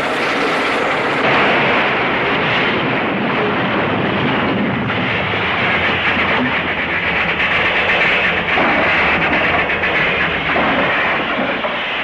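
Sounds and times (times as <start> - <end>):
steam train rattling on rails: 0.0 - 12.0.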